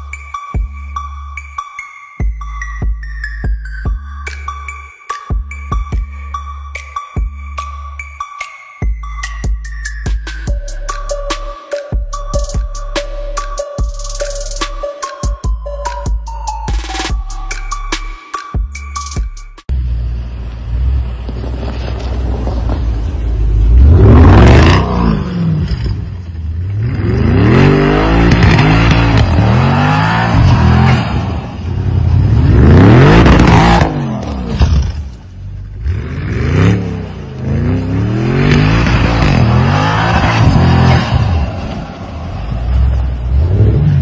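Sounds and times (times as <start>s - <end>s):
car engine revving: 19.7s - 44.0s.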